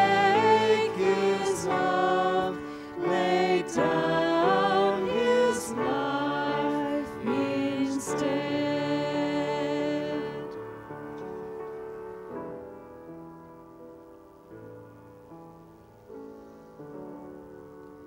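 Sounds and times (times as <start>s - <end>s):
hymn singing: 0.0s - 11.8s.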